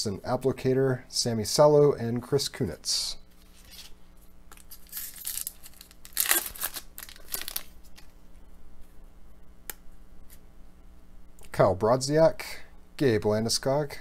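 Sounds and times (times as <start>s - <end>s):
wrapper tearing and crinkling: 4.5s - 8.2s.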